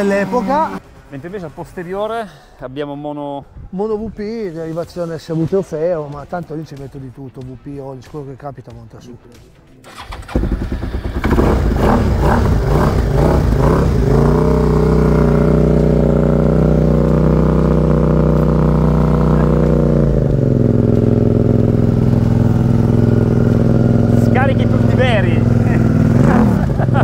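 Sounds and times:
motorcycle engine running: 0.0s - 1.5s, 9.9s - 27.0s.

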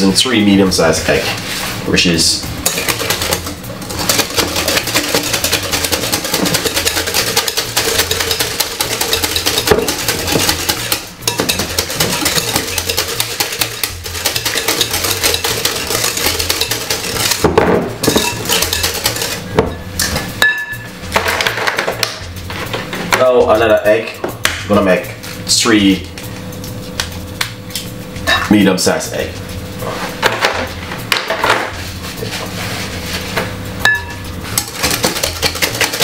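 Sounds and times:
utensil beating batter in bowl: 2.6s - 20.2s, 33.9s - 36.0s.

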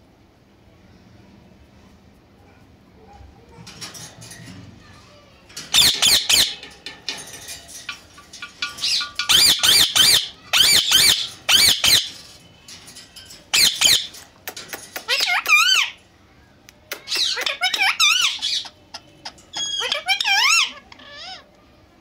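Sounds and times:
parakeet squawking: 5.7s - 6.7s, 7.8s - 12.3s, 13.5s - 14.2s, 14.8s - 16.0s, 17.0s - 21.5s.

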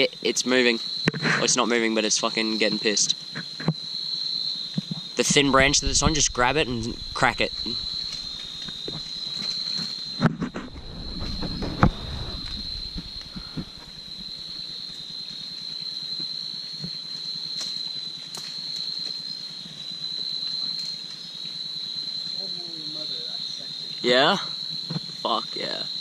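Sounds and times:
crickets chirping: 0.0s - 26.0s
rustling in branches: 5.6s - 15.0s.

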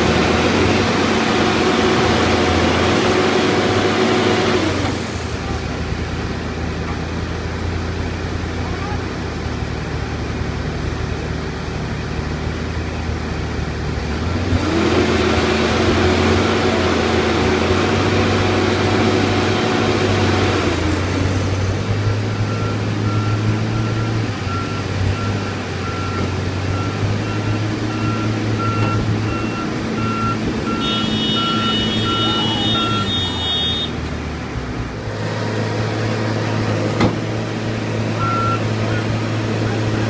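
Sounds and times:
engine revving under load: 0.0s - 6.3s, 13.5s - 40.0s
heavy diesel engines running: 0.0s - 40.0s
backup alarm beeping: 22.5s - 33.9s.

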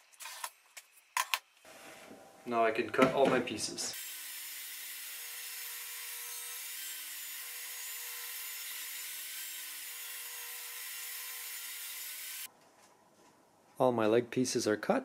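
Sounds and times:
saw blade cutting wood: 3.9s - 12.5s.

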